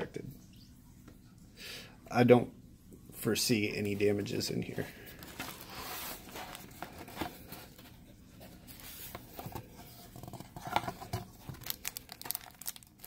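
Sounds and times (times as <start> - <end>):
cardboard mailer rustling and scraping: 5.1 - 11.6
cardboard crackles and clicks: 5.2 - 13.0.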